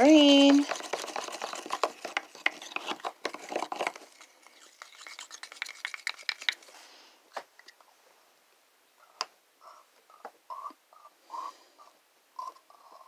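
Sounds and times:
stick scraping paint in bottle: 0.3 - 6.7.

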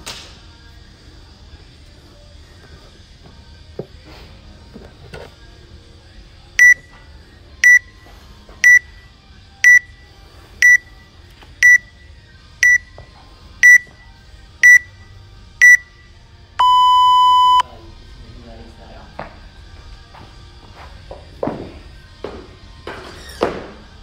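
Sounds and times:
long low start beep: 6.6 - 6.8, 7.6 - 7.8, 8.6 - 8.9, 9.6 - 9.9, 10.6 - 10.8, 11.6 - 11.9, 12.6 - 12.9, 13.6 - 13.9, 14.6 - 14.9, 15.6 - 15.9, 16.6 - 17.6
short high timer beeps: 6.6 - 6.8, 7.6 - 7.8, 8.6 - 8.9, 10.6 - 10.8, 11.6 - 11.9, 12.6 - 12.9, 13.6 - 13.9, 14.6 - 14.9, 15.6 - 15.9, 16.6 - 17.6.

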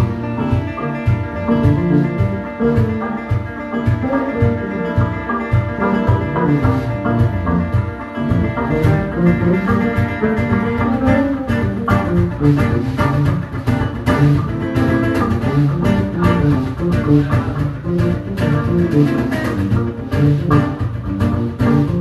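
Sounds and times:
acoustic guitar: 0.0 - 22.0
drum kit: 0.0 - 22.0
electric bass: 0.0 - 22.0.

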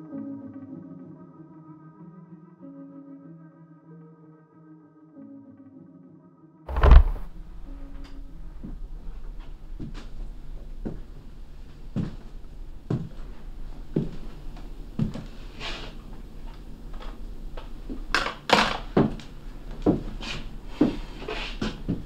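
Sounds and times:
scuffing noise: 6.7 - 7.3
slow footsteps on a floor: 6.7 - 18.1, 19.0 - 22.0.

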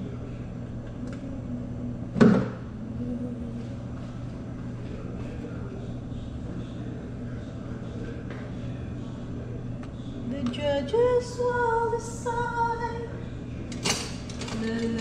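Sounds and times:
steady low hum: 0.0 - 15.0
woman singing long notes: 10.3 - 13.1.

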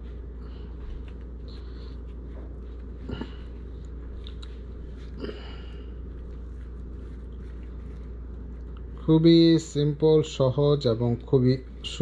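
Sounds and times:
steady low hum: 0.0 - 12.0
lettuce and bread crunching: 3.0 - 5.7.

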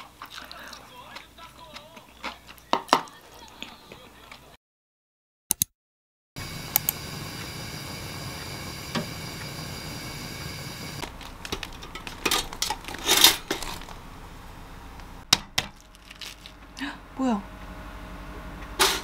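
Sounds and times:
steady hum: 6.4 - 19.0.

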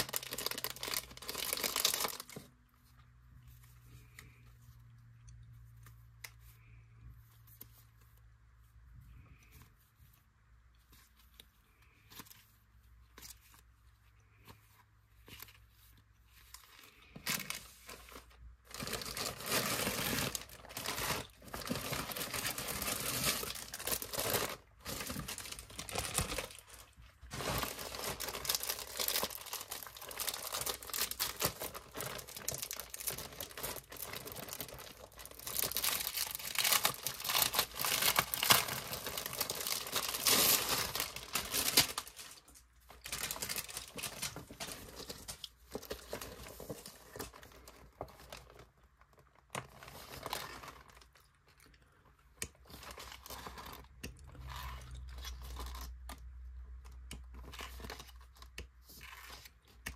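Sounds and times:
plastic tearing: 0.0 - 2.5, 16.9 - 48.6
plastic packaging crinkling: 0.0 - 2.7, 15.2 - 51.3.

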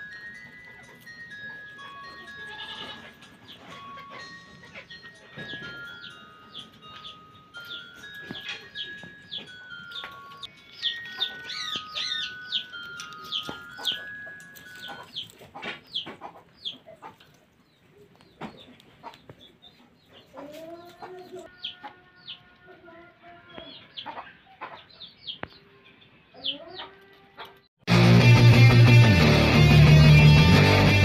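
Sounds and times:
chime-like tones: 0.0 - 15.6
low clucking bird calls: 2.8 - 22.5, 23.5 - 27.6
high bird chirps: 5.0 - 16.9.

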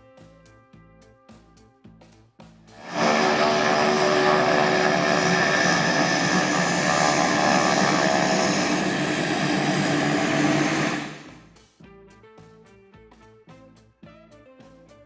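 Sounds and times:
turboprop engines droning and whining: 2.8 - 11.6.

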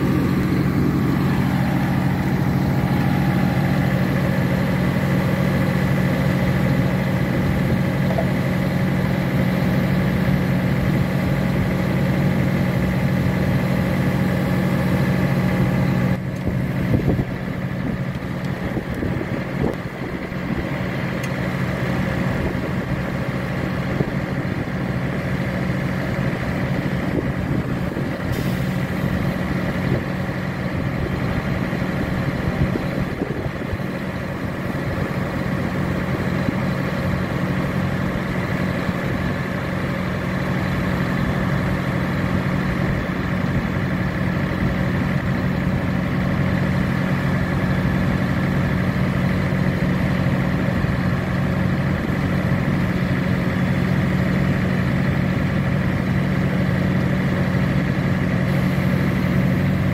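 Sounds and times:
high whine: 0.0 - 23.1
diesel engine running: 0.0 - 59.9.

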